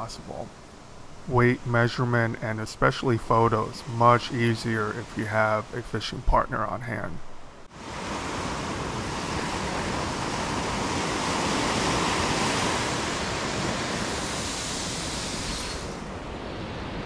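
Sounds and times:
surf breaking on beach: 7.7s - 17.0s.

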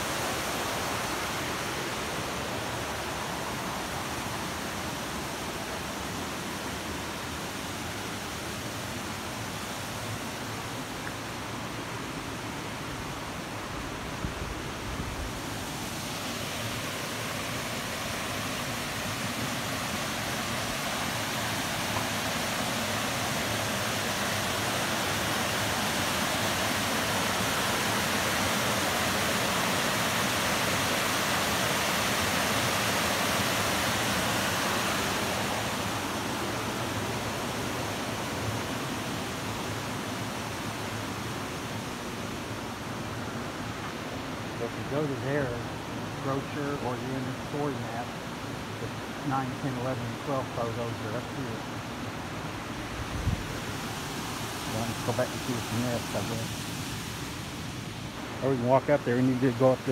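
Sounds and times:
waterfall pouring into a pool: 16.5s - 37.2s.

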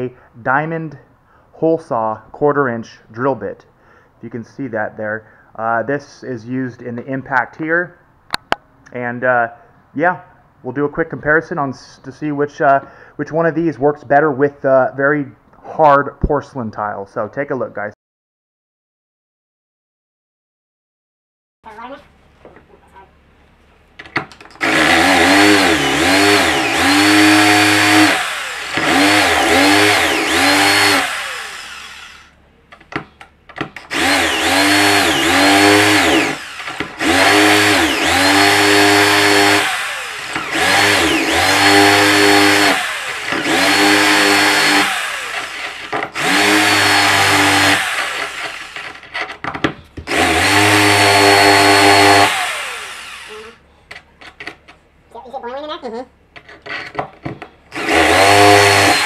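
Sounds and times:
drill motor boring into tile: 24.6s - 32.4s, 33.8s - 49.4s, 50.1s - 53.6s, 57.7s - 59.0s.

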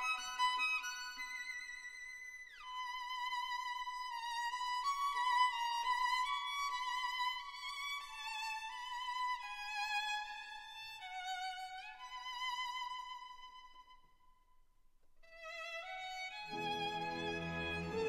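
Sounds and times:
solo violin playing slow melody: 2.6s - 13.9s, 15.3s - 18.0s.

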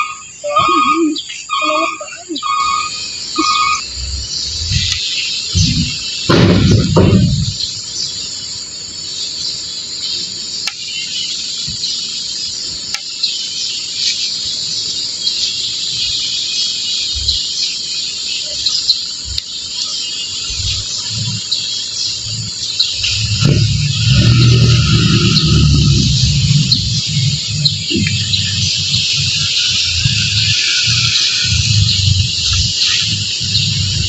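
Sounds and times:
insects chirring: 0.0s - 34.0s
truck engine rumble: 2.4s - 7.9s, 20.4s - 34.0s.

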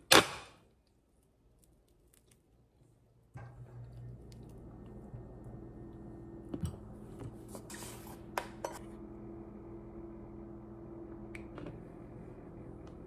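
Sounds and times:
low hum: 3.3s - 13.0s.

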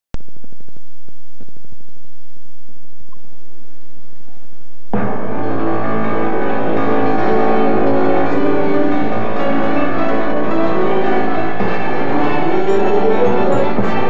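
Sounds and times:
brass held chords: 5.0s - 14.0s
strings held chords: 5.0s - 14.0s.

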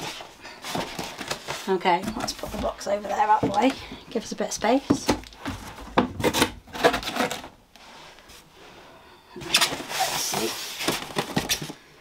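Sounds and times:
packing rubbing and rustling: 9.5s - 11.8s.

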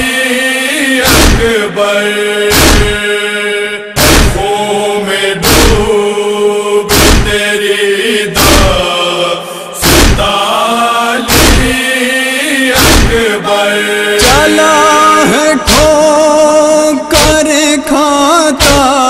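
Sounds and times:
man chanting a lament: 0.0s - 19.0s
deep rhythmic thump: 1.0s - 1.8s, 2.5s - 3.1s, 4.0s - 4.6s, 5.4s - 6.0s, 6.9s - 7.5s, 8.4s - 8.9s, 9.8s - 10.4s, 11.2s - 11.8s, 12.8s - 13.4s, 14.2s - 14.5s, 15.6s - 16.2s, 17.1s - 17.6s, 18.5s - 19.0s.

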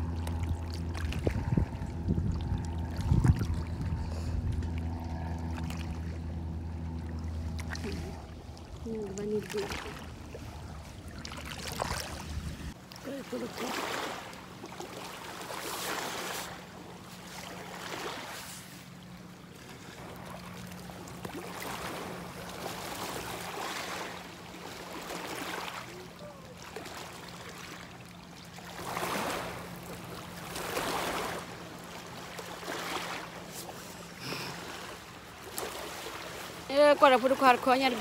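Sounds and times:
steady low hum: 0.0s - 38.0s
water washing and splashing: 7.1s - 19.1s.

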